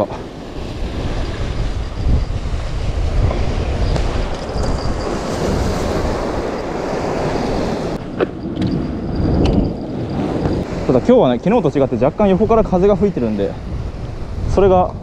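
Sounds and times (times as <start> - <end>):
sea surf on rocky shore: 0.0 - 15.0
wind buffeting microphone: 0.0 - 15.0.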